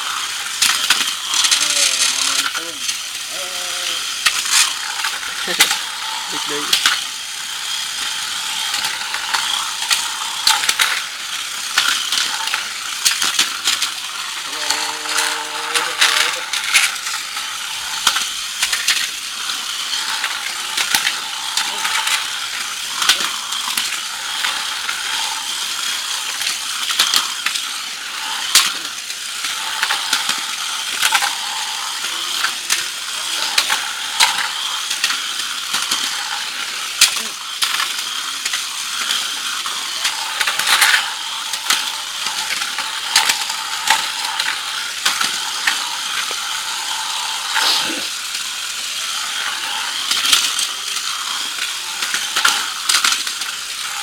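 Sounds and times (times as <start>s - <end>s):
plastic toys clacking together: 0.0s - 54.0s
toy cars whirring: 0.0s - 54.0s.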